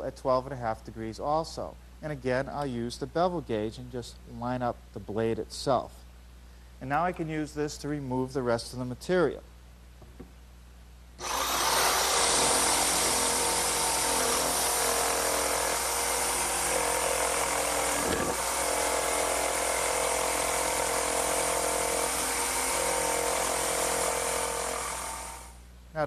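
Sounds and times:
electric jigsaw cutting wood: 11.2s - 25.6s.

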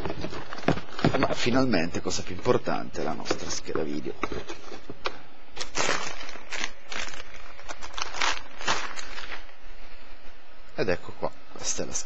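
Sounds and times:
plastic bag crinkling: 5.6s - 9.6s.

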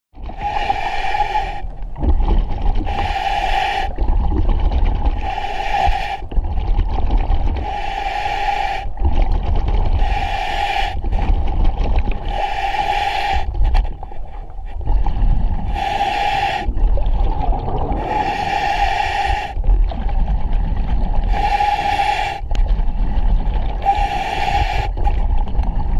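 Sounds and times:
diver breathing through regulator: 0.2s - 1.8s, 2.8s - 4.0s, 5.1s - 6.4s, 7.4s - 25.9s
low rumble: 13.4s - 18.7s, 19.5s - 21.7s, 22.4s - 24.1s, 24.8s - 25.9s.

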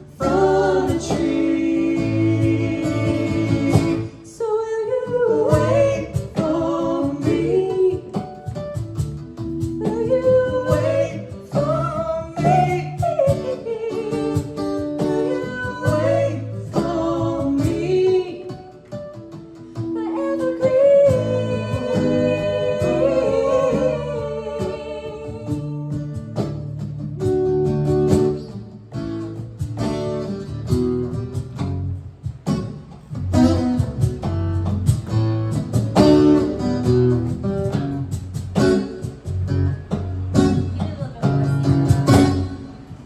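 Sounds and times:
low bass notes: 0.0s - 4.3s
acoustic guitar picking and strumming: 0.0s - 43.0s.

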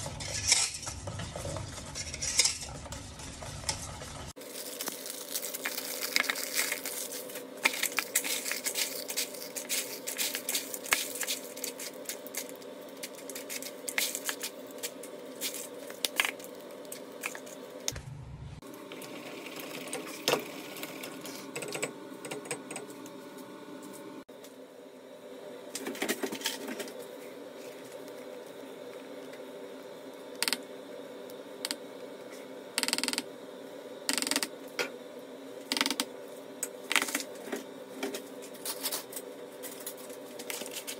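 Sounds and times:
steady hum: 0.0s - 40.9s
biscuits crushed by hand: 4.4s - 17.4s.

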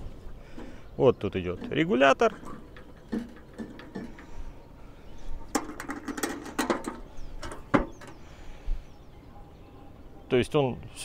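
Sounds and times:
metal grill lid clicks and clatters: 1.6s - 4.3s, 5.5s - 8.2s.

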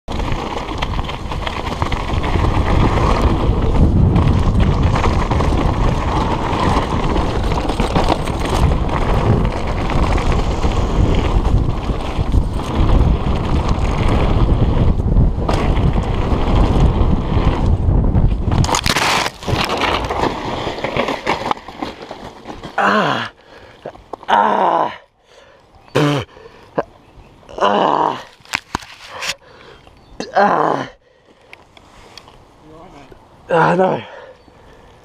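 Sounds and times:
wind buffeting microphone: 0.1s - 20.8s
bike tyres rattling on stones: 0.1s - 26.7s, 28.1s - 30.2s.

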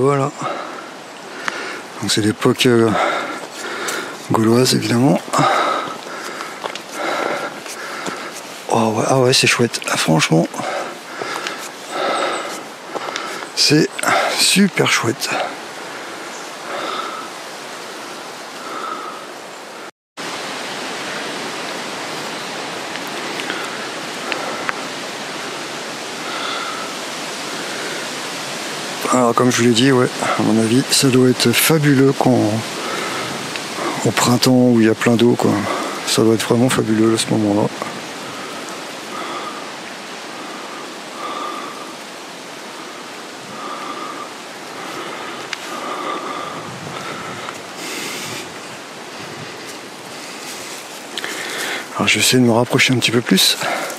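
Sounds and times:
fountain water running: 20.6s - 46.5s.

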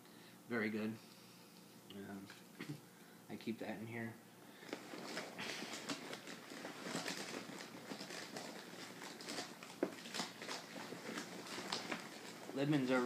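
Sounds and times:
bag rustling: 4.6s - 13.0s.

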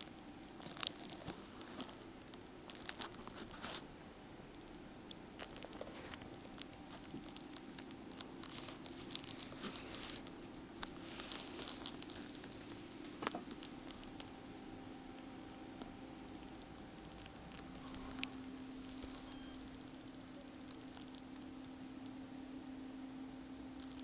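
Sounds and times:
faint steady hum: 0.0s - 24.0s
crackling and tapping on microphone: 4.6s - 14.4s.

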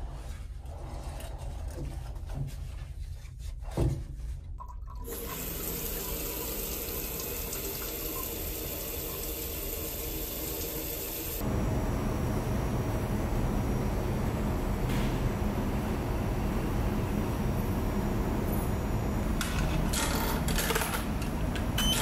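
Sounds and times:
shower spraying water on wall: 5.1s - 11.5s
low steady hum: 11.4s - 22.0s.

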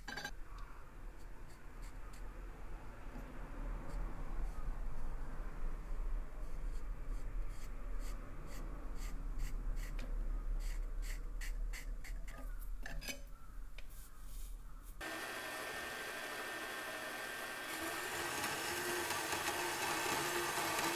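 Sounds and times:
band saw running: 15.0s - 20.9s.

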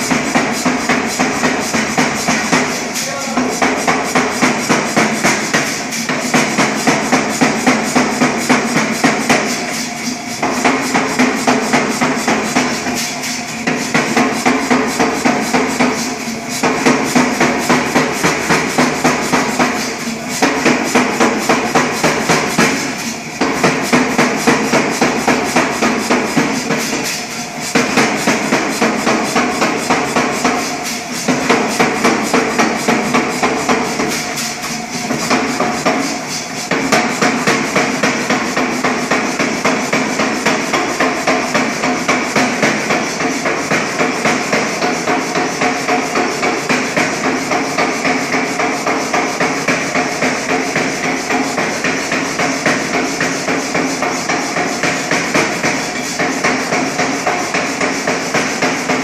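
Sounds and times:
air hammer striking hot metal: 0.0s - 59.0s.

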